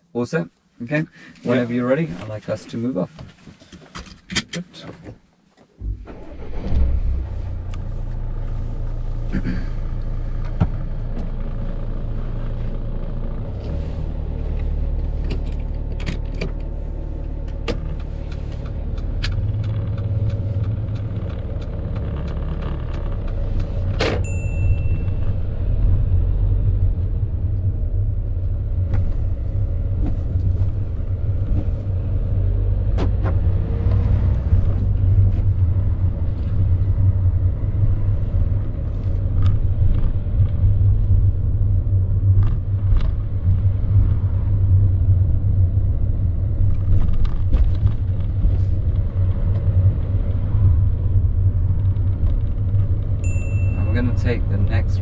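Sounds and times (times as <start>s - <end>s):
car engine and road rumble: 0.0s - 55.0s
brief ringing tone: 24.3s - 25.4s, 53.2s - 53.9s.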